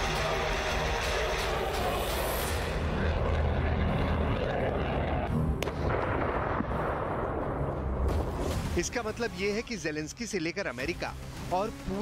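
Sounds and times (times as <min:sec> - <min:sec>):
artillery fire and explosions rumble: 0:02.6 - 0:09.3.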